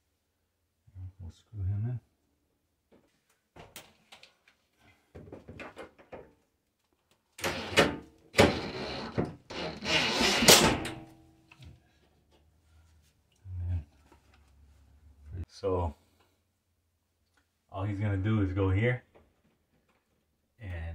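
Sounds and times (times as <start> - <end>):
cordless driver running a screw: 8.5 - 10.6.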